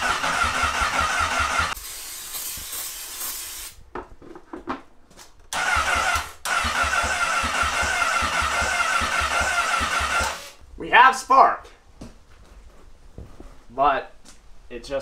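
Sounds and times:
motorcycle starter cranking engine: 0:00.0 - 0:01.8, 0:05.5 - 0:10.6.

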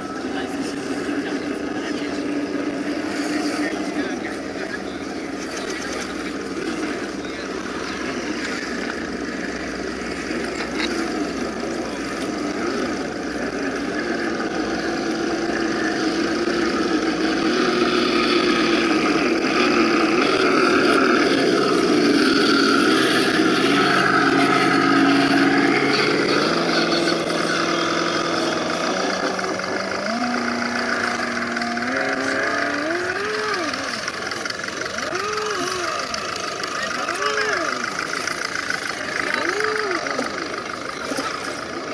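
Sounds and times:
rc truck motors whining: 0:00.0 - 0:41.9.

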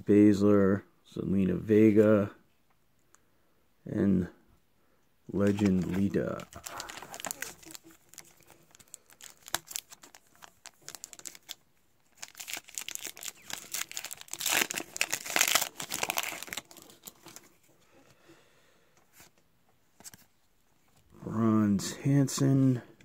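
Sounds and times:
wrapper crinkling and tearing: 0:05.4 - 0:17.5.

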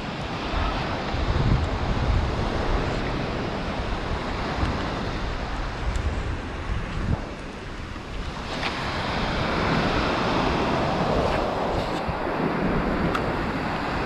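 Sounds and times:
ocean surf breaking on beach: 0:00.0 - 0:14.0
wind buffeting microphone: 0:00.0 - 0:14.0.

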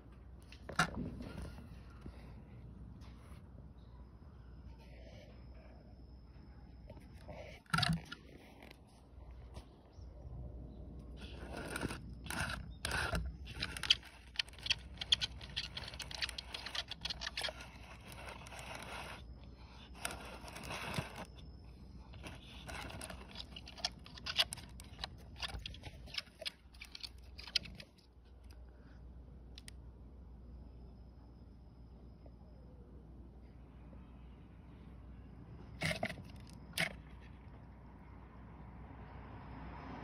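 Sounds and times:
scraping on plastic container: 0:11.2 - 0:21.3, 0:22.2 - 0:27.8, 0:35.8 - 0:37.0.

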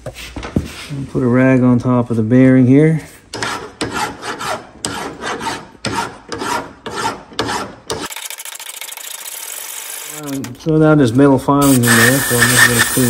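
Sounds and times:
file rasping on steel: 0:03.3 - 0:08.1.

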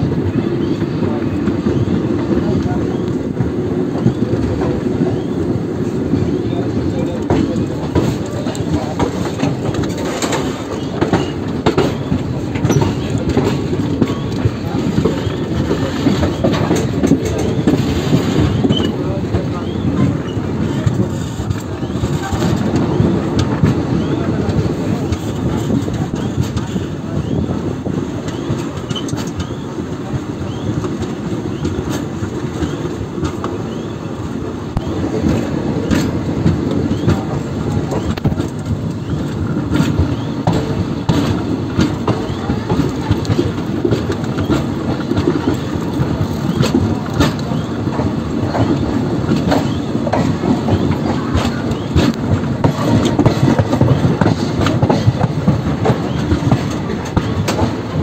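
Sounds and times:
train coaches rumbling: 0:00.0 - 0:58.0
wheels clicking over rail joints: 0:00.5 - 0:58.0.

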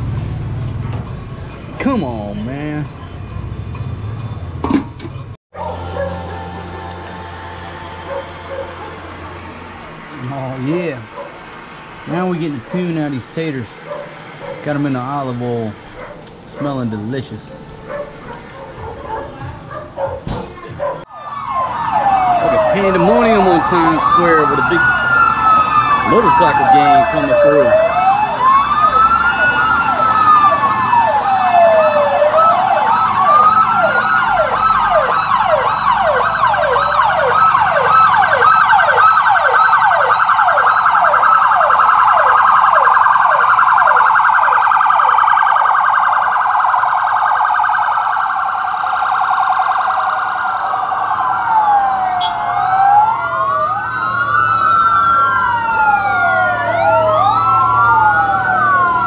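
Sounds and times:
emergency vehicle sirens wailing: 0:00.0 - 0:59.0
rapid siren yelp: 0:05.6 - 0:11.8, 0:21.0 - 0:59.0.

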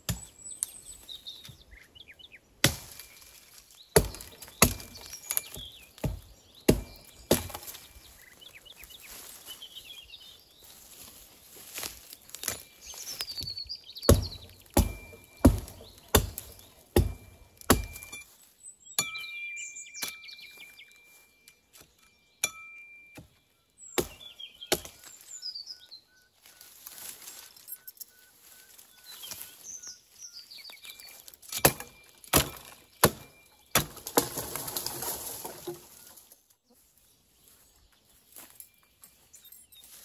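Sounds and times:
wood being chopped: 0:00.0 - 0:00.4, 0:02.6 - 0:03.2, 0:03.9 - 0:07.9, 0:14.1 - 0:18.2, 0:24.0 - 0:25.2, 0:31.4 - 0:36.0
birds chirping: 0:00.0 - 0:40.0.

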